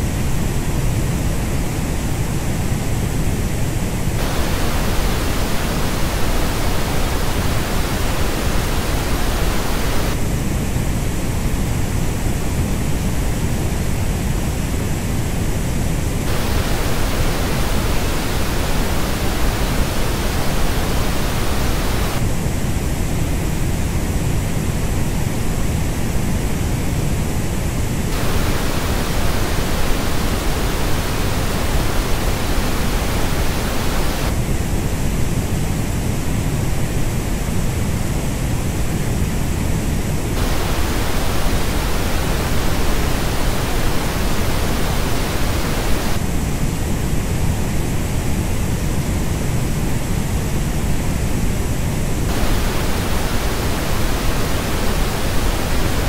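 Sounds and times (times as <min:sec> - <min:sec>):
steady pink noise: 0:00.0 - 0:56.0.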